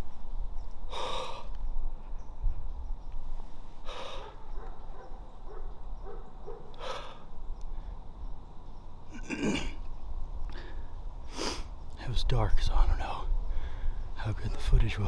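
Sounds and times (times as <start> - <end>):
man breathing hard: 0.9 - 1.7, 3.8 - 4.6, 6.7 - 8.1, 13.4 - 14.1.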